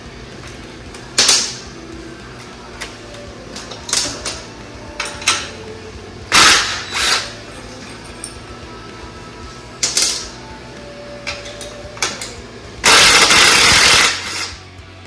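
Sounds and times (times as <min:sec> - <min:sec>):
cordless power driver running: 0:06.1 - 0:07.4, 0:11.9 - 0:14.7.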